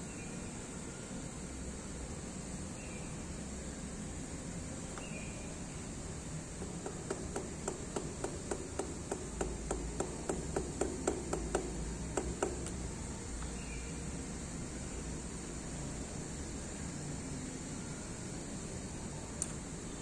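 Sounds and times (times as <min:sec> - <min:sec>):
small hammer tapping metal: 0:06.6 - 0:12.8.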